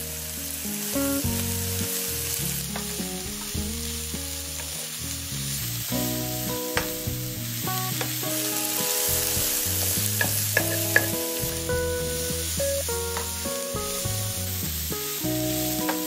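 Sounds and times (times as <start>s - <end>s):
food sizzling in a pan: 0.0s - 16.0s
utensil tapping against pan: 10.2s - 11.2s.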